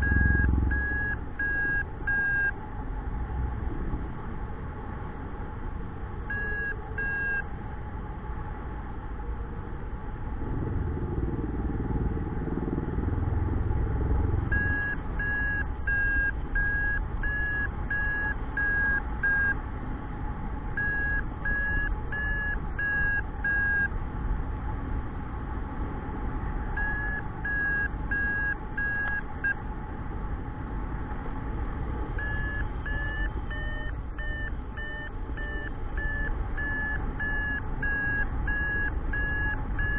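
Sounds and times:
variometer short beeps: 0.0 - 2.5, 6.3 - 7.4, 14.5 - 19.6, 20.8 - 23.9, 26.8 - 29.6, 32.2 - 39.9.

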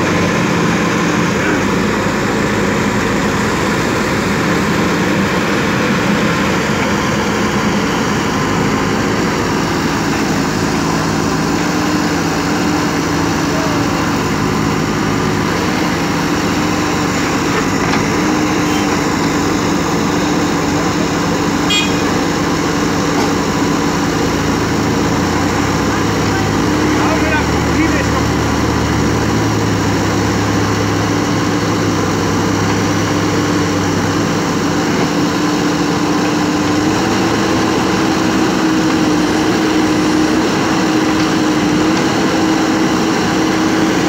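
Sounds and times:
diesel engine running loudly: 0.0 - 44.0.

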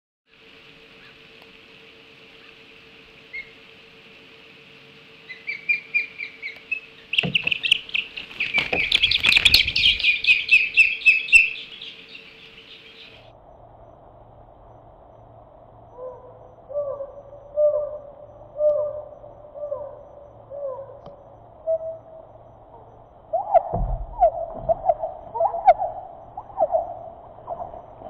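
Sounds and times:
steady high hiss: 0.3 - 28.0
young birds alarm chirps: 5.2 - 13.3, 15.9 - 28.0
knocks and thuds: 23.7 - 24.8.

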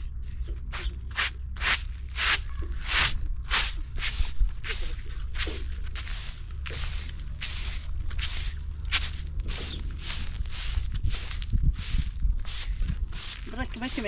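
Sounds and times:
footsteps crunching on gritty ground: 0.1 - 14.0.

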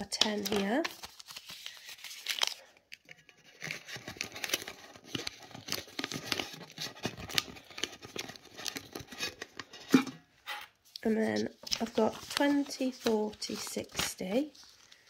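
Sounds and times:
banknote rustling and crinkling: 0.0 - 10.0, 10.8 - 15.0.

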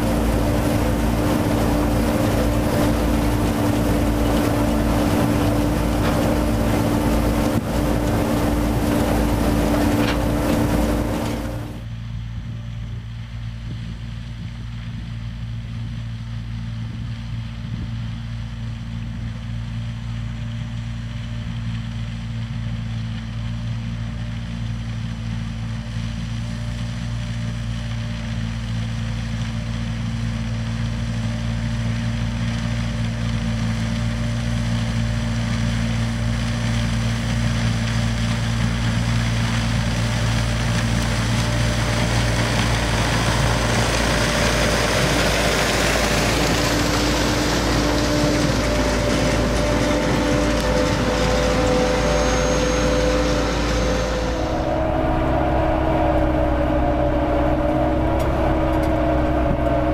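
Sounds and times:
harvester diesel engine hum: 0.0 - 59.9
hissing whirr: 40.8 - 59.9.

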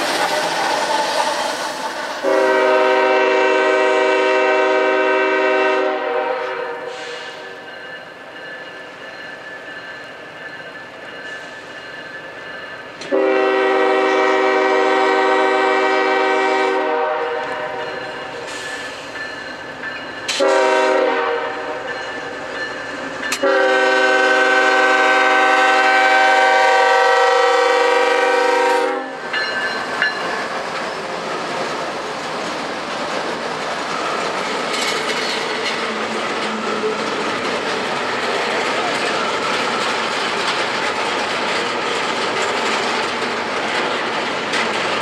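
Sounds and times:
train wheel clatter on rails: 0.0 - 26.5, 28.0 - 45.0
locomotive air horn blasts: 2.2 - 7.6, 13.1 - 18.7, 20.3 - 21.8, 23.4 - 29.2.

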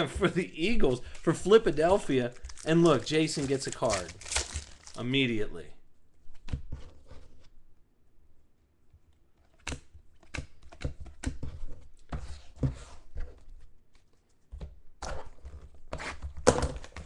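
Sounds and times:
rustling of foil pack: 1.2 - 5.3.

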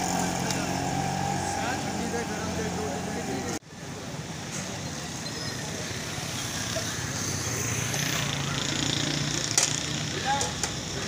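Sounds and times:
vehicle engine passing: 0.0 - 3.6.

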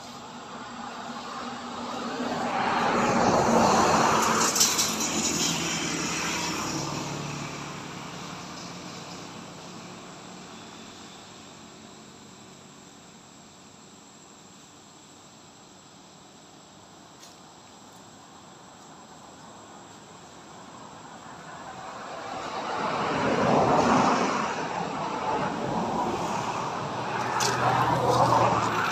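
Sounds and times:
road vehicle passing: 0.0 - 10.6, 20.8 - 28.9
insects buzzing: 0.0 - 28.9.

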